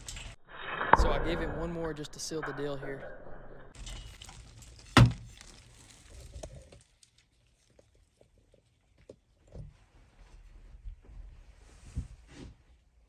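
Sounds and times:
sharp thunk: 0:00.8 - 0:01.8.

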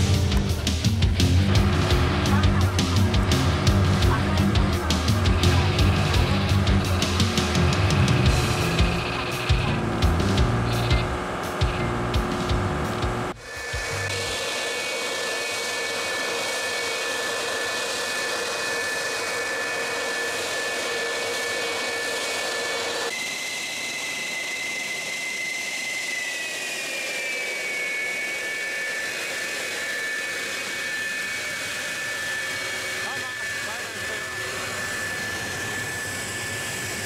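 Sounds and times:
fighter jet engines whining: 0:00.0 - 0:37.0.

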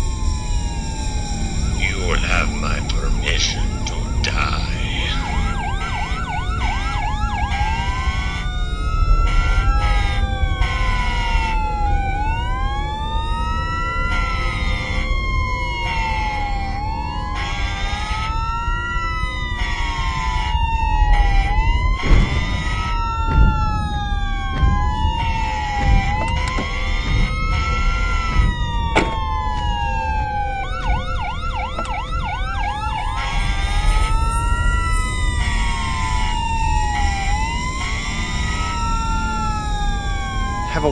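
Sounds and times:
emergency sirens wailing: 0:00.0 - 0:40.9
low rumble: 0:20.8 - 0:40.8.

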